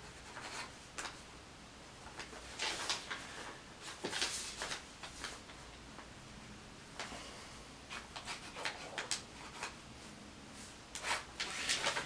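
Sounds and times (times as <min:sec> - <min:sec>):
pen scratching on paper: 0:00.0 - 0:00.7.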